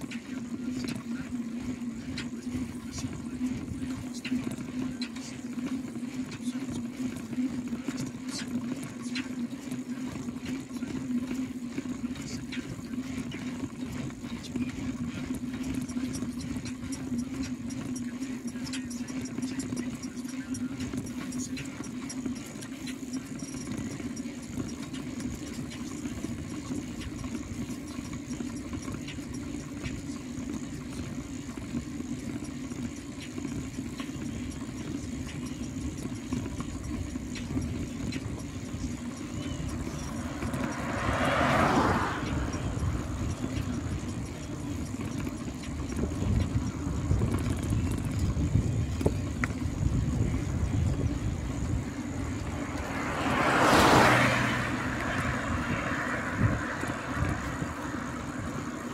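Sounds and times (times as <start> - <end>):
bicycle tyre hum on road: 0.0 - 58.9
passing road vehicle: 0.0 - 58.9
wind rumble on microphone: 36.6 - 58.9.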